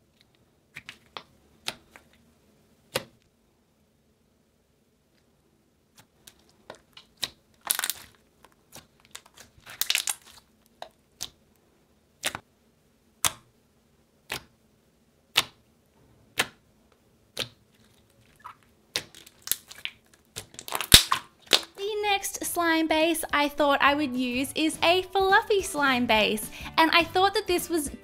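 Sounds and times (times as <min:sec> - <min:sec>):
slime squishing: 0:00.2 - 0:02.2, 0:05.9 - 0:11.5, 0:15.3 - 0:15.7, 0:17.3 - 0:21.8
slime clicking pops: 0:13.2 - 0:13.5, 0:15.3 - 0:15.6, 0:18.9 - 0:21.7.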